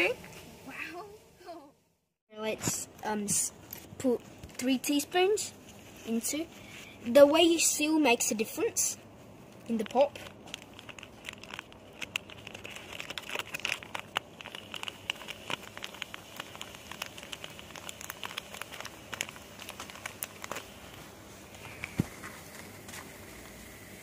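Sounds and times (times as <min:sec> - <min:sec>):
plastic bag crinkling: 0:09.4 - 0:22.8.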